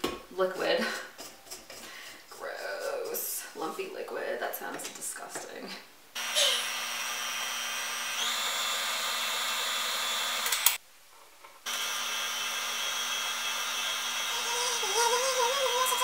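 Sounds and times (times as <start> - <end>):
stand mixer motor whining: 6.2 - 10.7, 11.7 - 16.0.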